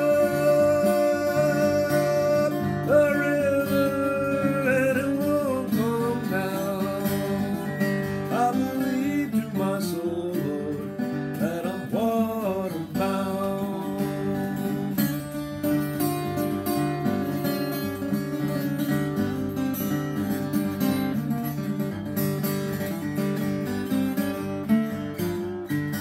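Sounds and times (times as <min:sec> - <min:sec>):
man singing: 0:00.0 - 0:15.2
acoustic guitar picked and strummed: 0:00.0 - 0:26.0.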